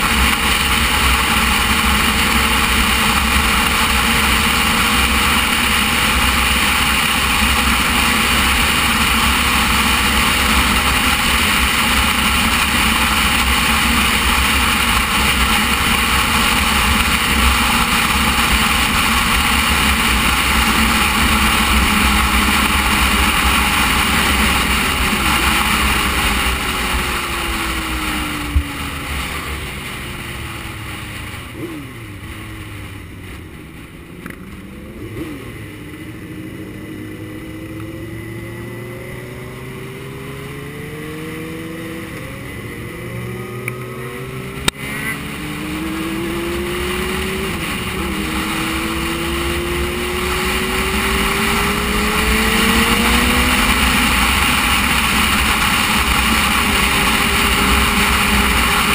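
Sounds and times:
motorcycle engine: 0.0 - 58.9.

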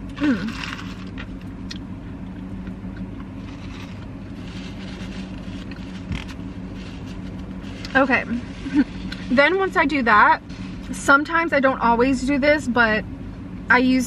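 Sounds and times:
car engine idling: 0.0 - 14.0
paper wrapper rustling: 3.4 - 9.1.

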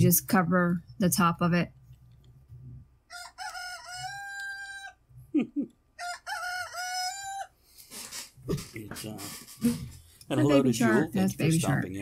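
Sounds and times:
rooster crowing: 3.1 - 5.0, 6.0 - 7.6.

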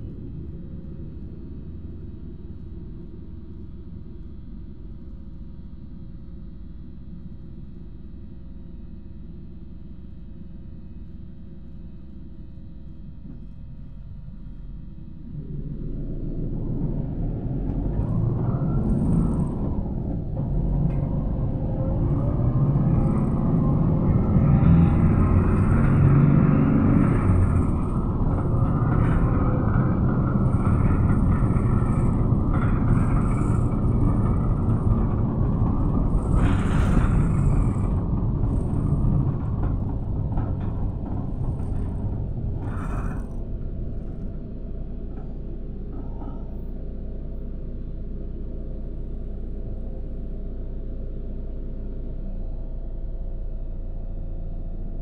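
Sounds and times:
bus engine and road rumble: 12.6 - 55.0.

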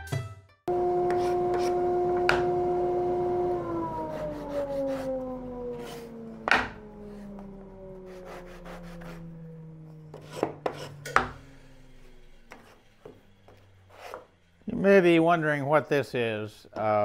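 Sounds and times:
table saw whining: 0.7 - 14.6
sanding block scraping wood: 0.9 - 2.1, 4.0 - 6.2, 8.0 - 9.4, 10.2 - 11.0.

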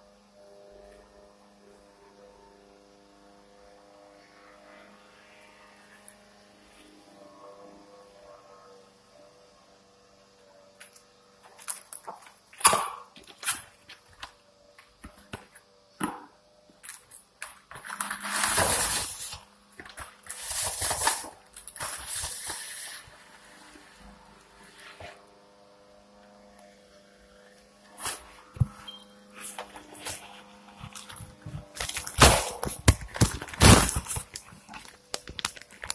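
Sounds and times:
plastic bags rustling: 16.8 - 23.4, 28.0 - 35.9.

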